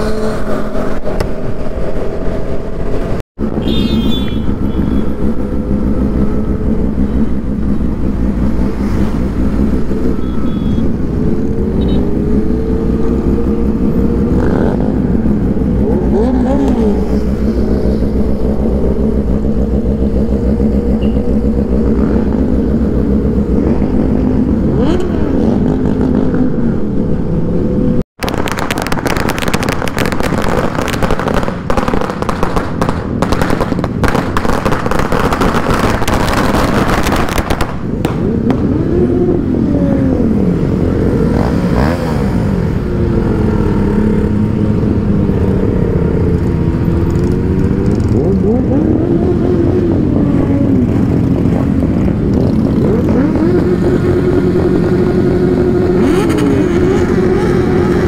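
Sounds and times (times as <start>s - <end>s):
motorcycle engines revving: 0.0s - 58.0s
firecrackers crackling: 28.2s - 38.6s.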